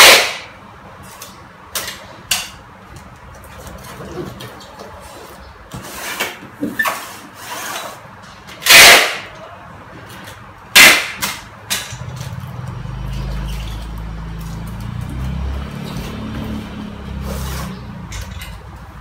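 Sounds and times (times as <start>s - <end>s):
packing tape screeching off dispenser: 8.6s - 9.3s.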